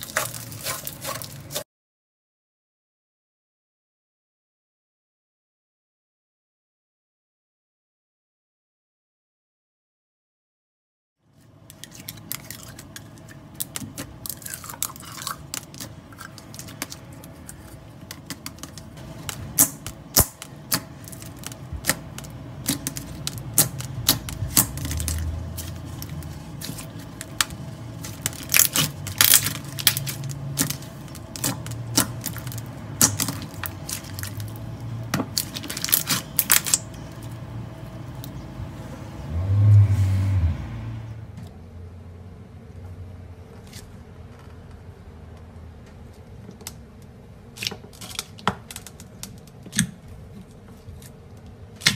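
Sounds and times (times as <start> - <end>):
slime squishing: 0.0 - 1.6, 11.7 - 37.4.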